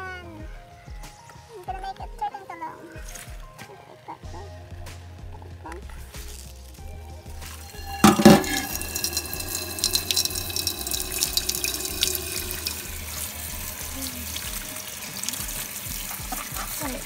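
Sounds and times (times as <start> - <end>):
tap water running into sink: 6.8 - 17.0.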